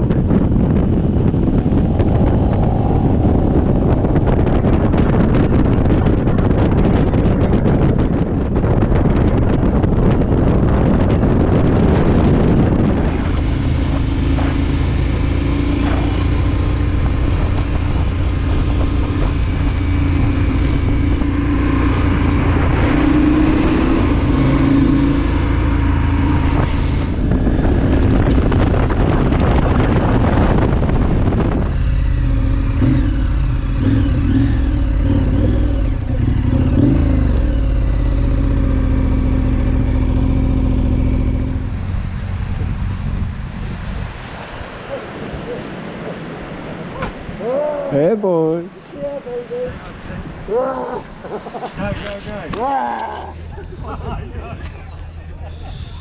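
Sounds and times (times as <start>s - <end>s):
motorcycle engine drone: 0.0s - 56.0s
wind buffeting on microphone: 0.0s - 56.0s.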